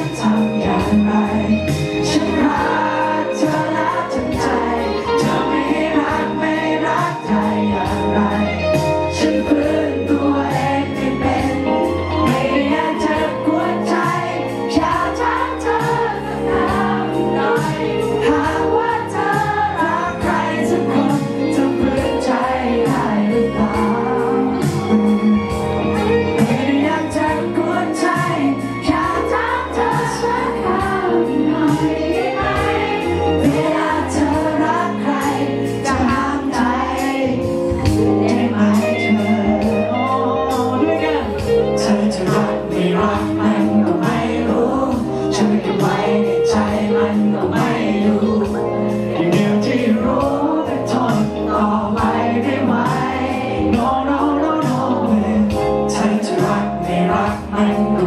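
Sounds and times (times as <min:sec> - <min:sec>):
man singing into microphone: 0:00.0 - 0:15.6, 0:17.5 - 0:32.1, 0:33.1 - 0:58.0
pop music over sound system: 0:00.0 - 0:58.0.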